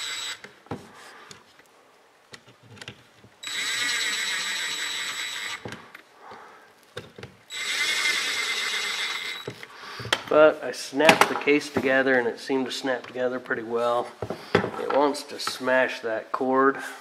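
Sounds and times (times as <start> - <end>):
cordless drill driving screws: 0.0 - 0.5, 3.4 - 5.9, 7.5 - 9.7.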